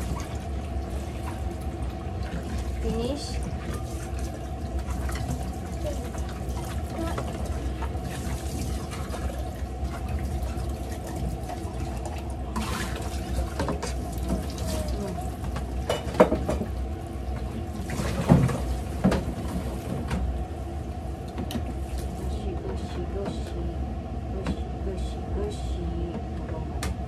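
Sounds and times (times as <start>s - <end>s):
dishes clinking: 15.8s - 16.7s.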